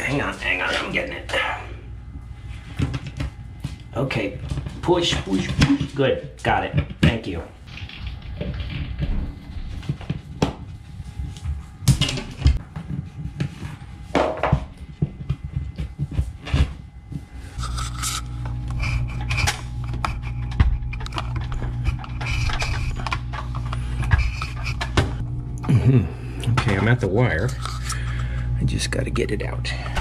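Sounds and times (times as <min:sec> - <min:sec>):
steady low hum: 0:00.0 - 0:30.0
steel tape scraping drywall: 0:17.5 - 0:25.0.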